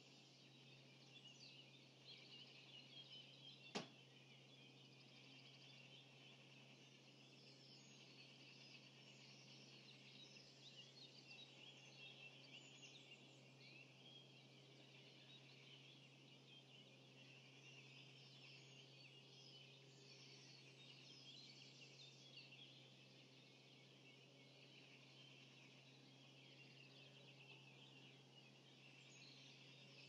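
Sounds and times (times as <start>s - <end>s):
birds singing: 0.0s - 30.0s.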